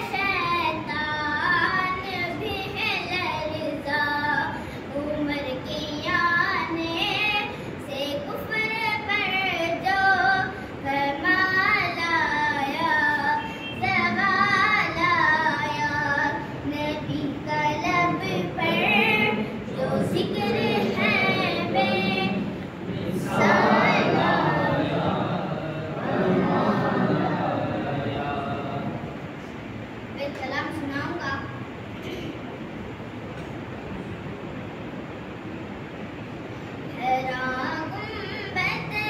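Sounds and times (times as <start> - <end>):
boy singing unaccompanied: 0.0 - 25.1, 36.9 - 39.0
mixed voices: 17.5 - 29.5.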